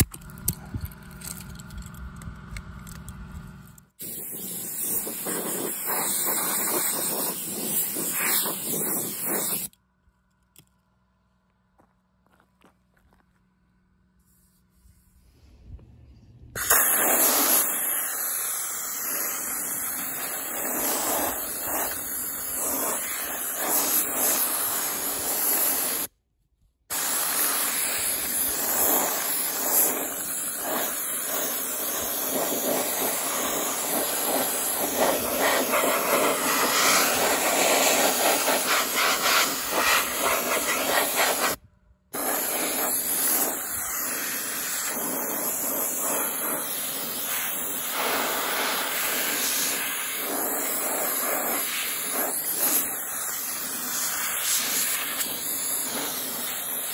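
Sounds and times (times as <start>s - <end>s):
soda blaster hissing: 4.0s - 9.7s, 16.6s - 26.1s, 26.9s - 41.6s, 42.2s - 56.9s.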